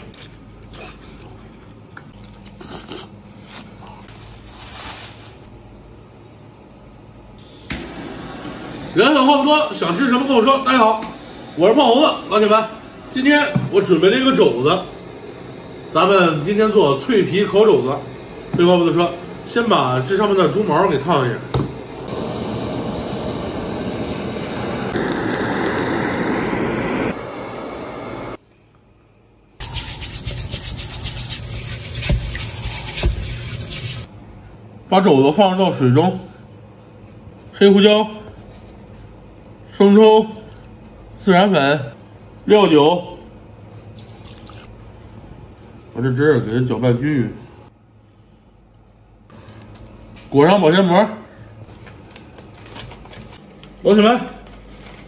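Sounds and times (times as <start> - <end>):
crunchy biting and chewing: 0.0 - 4.1
plastic bag crinkling: 4.1 - 5.5, 51.7 - 53.6
blowtorch flame roaring: 7.4 - 28.4.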